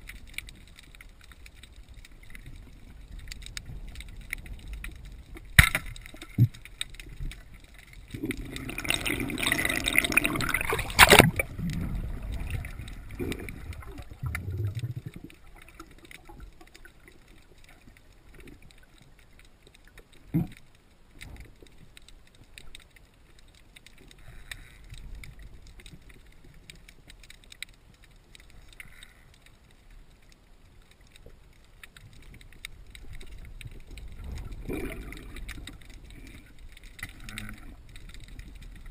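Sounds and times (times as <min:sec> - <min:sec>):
gurgling water: 0:00.0 - 0:21.8, 0:31.9 - 0:38.9
underwater water noise: 0:00.0 - 0:38.9.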